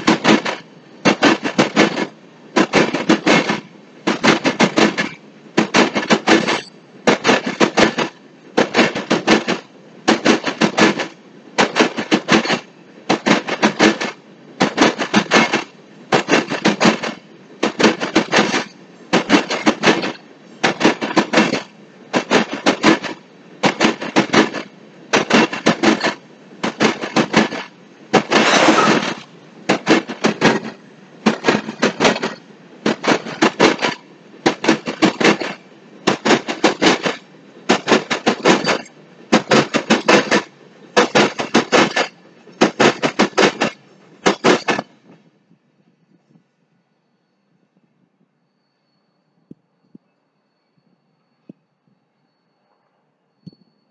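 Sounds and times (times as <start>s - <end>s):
train wheels clacking over rail joints: 0.0s - 45.3s.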